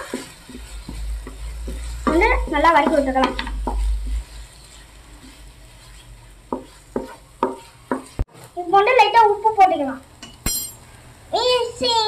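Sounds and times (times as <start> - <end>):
spatula scraping vegetables in pan: 0.0 - 9.0
oil sizzling: 0.0 - 12.0
spatula knocking against pan: 1.2 - 3.9, 6.5 - 8.2.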